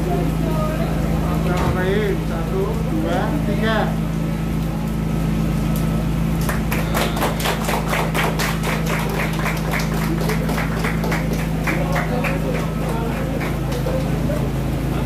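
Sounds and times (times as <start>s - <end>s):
steady low hum: 0.0s - 15.0s
group clapping: 5.7s - 15.0s.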